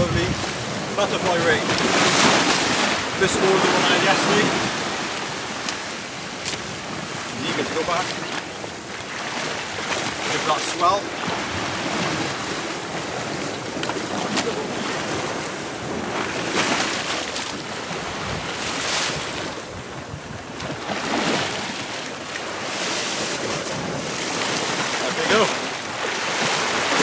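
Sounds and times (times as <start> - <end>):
wind on microphone: 0.0 - 8.0, 11.1 - 21.9
ocean waves breaking: 0.0 - 27.0.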